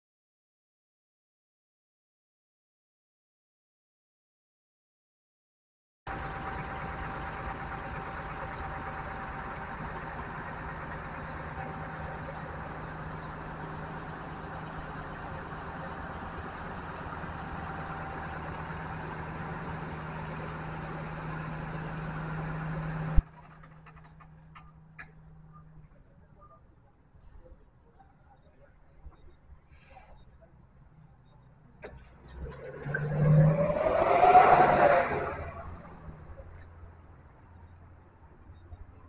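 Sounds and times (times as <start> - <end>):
bus engine idling: 6.1 - 32.3.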